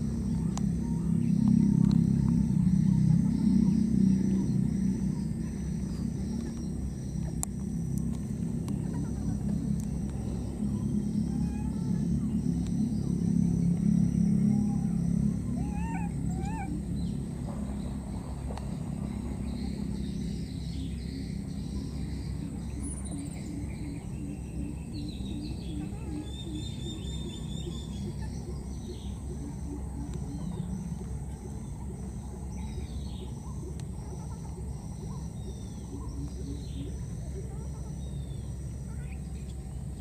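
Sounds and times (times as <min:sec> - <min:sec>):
birds chirping and trilling: 0:00.0 - 0:40.0
steady low outdoor noise: 0:00.0 - 0:40.0.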